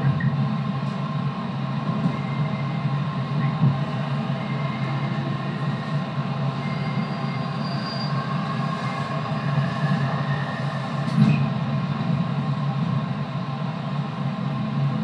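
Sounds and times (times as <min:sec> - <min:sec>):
train motors humming and whining: 0:00.0 - 0:15.0
wheels rumbling on rail: 0:00.0 - 0:15.0.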